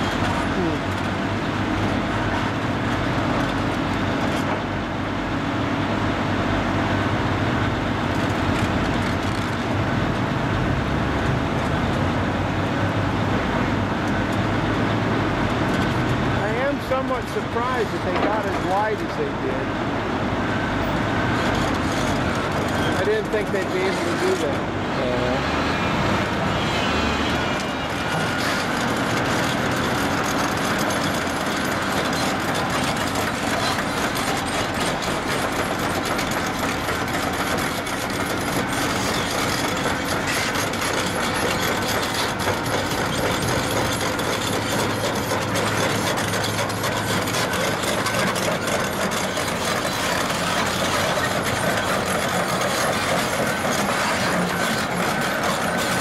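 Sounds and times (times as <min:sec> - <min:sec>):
diesel engine running: 0:00.0 - 0:56.0
steel track links clattering: 0:28.3 - 0:56.0.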